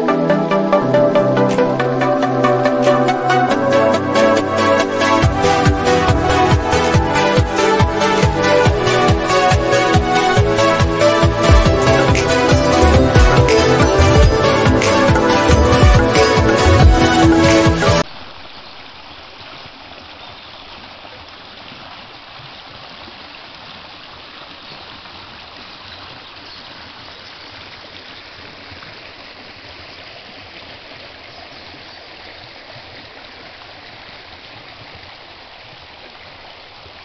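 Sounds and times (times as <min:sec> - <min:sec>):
music: 0:00.0 - 0:18.0
stream splashing over rocks: 0:18.0 - 0:37.0.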